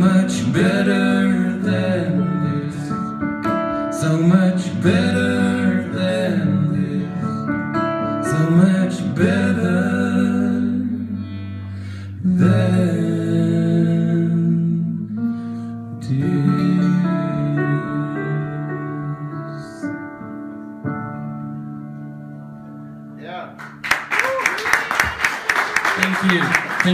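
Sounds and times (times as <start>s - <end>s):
person singing: 0.0s - 7.6s, 8.2s - 11.4s, 12.0s - 15.2s, 16.0s - 20.0s
acoustic guitar: 0.0s - 24.1s
keyboard playing piano: 0.0s - 24.2s.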